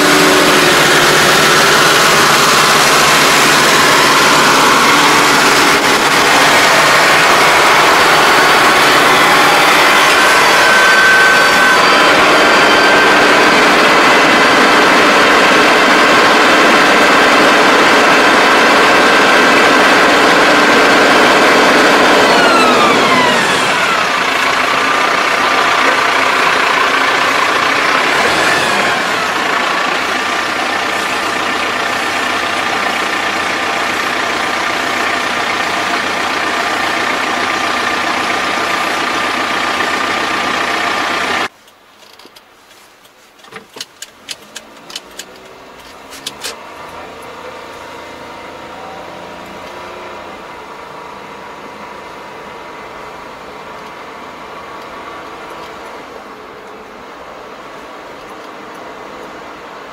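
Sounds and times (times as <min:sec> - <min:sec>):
steady whine: 0:00.0 - 0:41.6
tractor engine running: 0:00.0 - 0:59.9.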